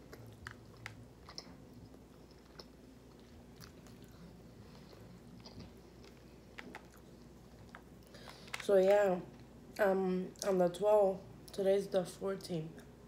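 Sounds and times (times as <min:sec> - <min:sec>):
mouth chewing food: 0:00.0 - 0:08.6.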